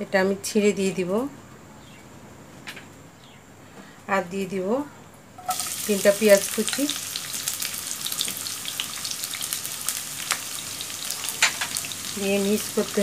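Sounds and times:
onions sizzling in oil: 5.4 - 13.0.

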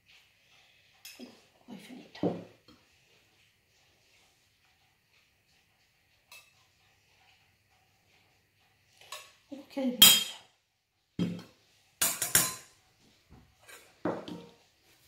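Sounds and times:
utensils and dishes clinking: 10.0 - 10.5, 11.2 - 12.8, 13.6 - 14.6.

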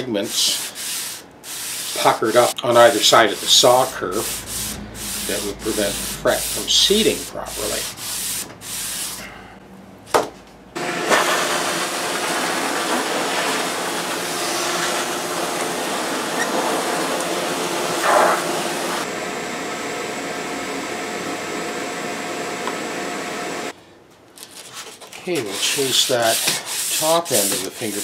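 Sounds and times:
shop vacuum running: 1.7 - 23.8.

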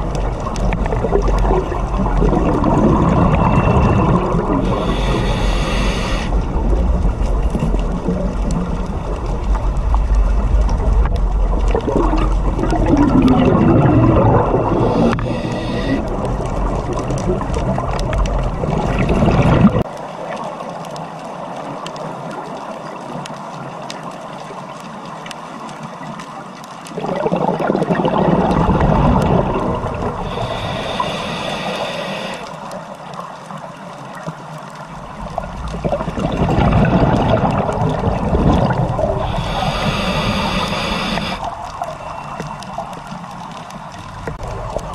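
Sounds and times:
bubbling and gurgling: 0.0 - 44.9
underwater water rushing: 0.0 - 44.9.

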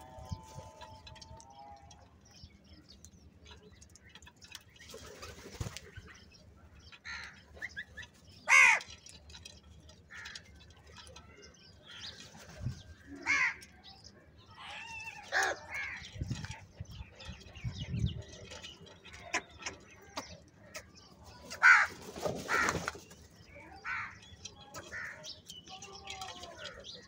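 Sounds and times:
beaks pecking at grain: 0.0 - 27.0
wings fluttering: 4.8 - 6.1, 21.4 - 23.3
crows cawing: 8.5 - 8.9, 13.2 - 13.6, 21.6 - 22.9.

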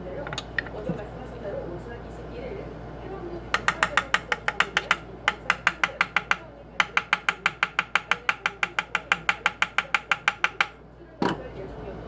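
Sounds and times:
mallet tapping on metal punch: 3.6 - 10.8.

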